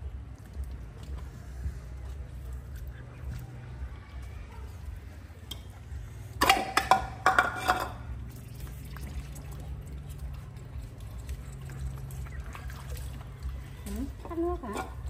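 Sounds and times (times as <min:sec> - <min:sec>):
hard objects clattering: 0:06.4 - 0:08.2.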